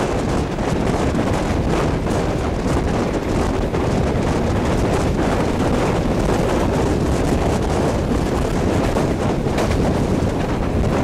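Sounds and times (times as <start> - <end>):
train running noise: 0.0 - 11.0
wind buffeting microphone: 0.0 - 11.0.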